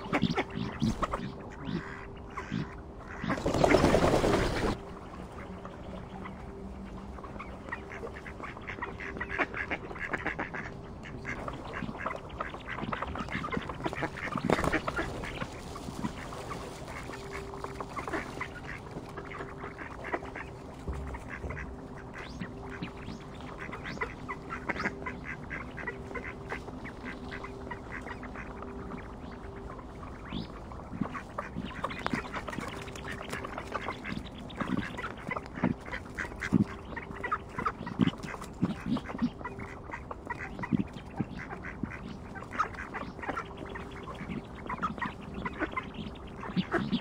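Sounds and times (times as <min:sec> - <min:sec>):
ducks quacking: 0:00.0 - 0:47.0.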